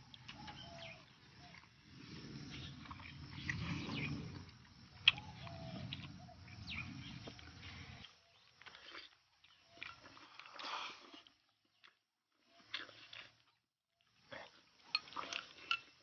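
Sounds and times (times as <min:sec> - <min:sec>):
man chewing and slurping: 0:07.2 - 0:12.0, 0:12.6 - 0:13.5.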